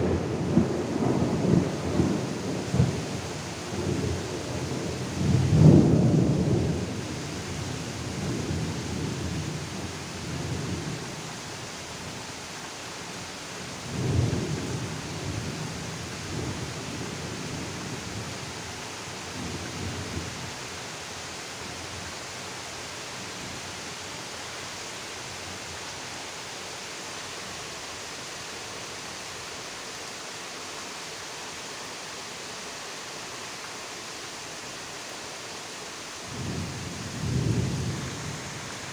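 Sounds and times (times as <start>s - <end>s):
steady rain: 0.0s - 38.9s
thunder rumbling: 36.3s - 38.9s.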